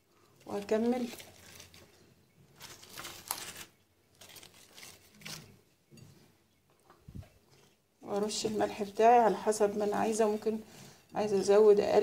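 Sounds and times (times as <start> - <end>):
soft rustling and scraping: 0.4 - 11.5.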